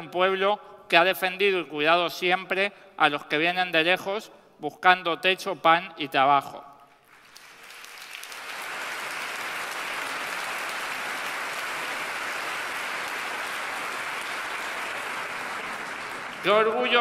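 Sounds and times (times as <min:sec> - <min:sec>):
crowd applauding: 0:07.0 - 0:17.0.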